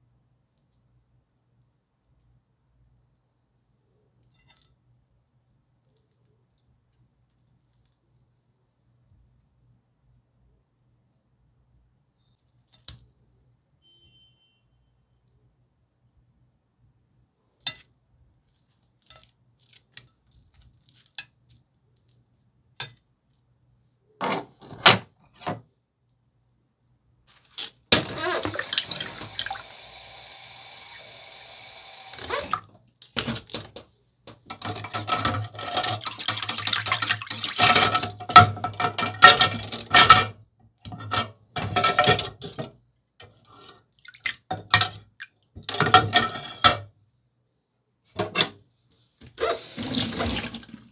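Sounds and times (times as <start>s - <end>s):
tap running: 27.9s - 32.7s, 49.4s - 50.8s
dishes and pots clattering: 34.5s - 42.7s, 45.7s - 46.9s.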